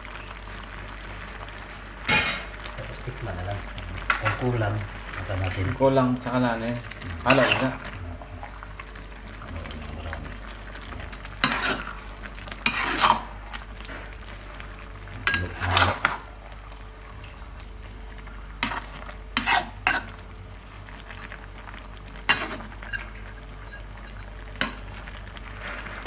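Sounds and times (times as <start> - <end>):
metal spatula scraping a wok: 11.4 - 12.0, 12.6 - 13.3, 15.3 - 16.2, 18.6 - 20.1, 22.3 - 23.9.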